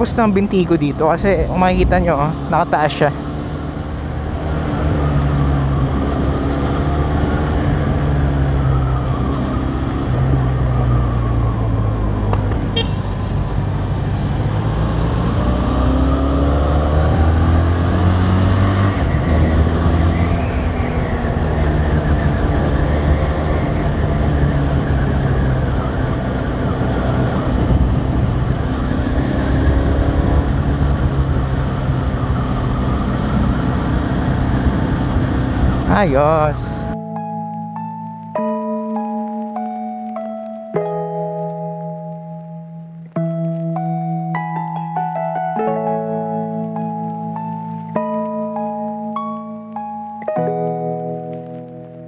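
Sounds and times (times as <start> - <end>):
motorcycle engine shifting gears: 0.9 - 36.0.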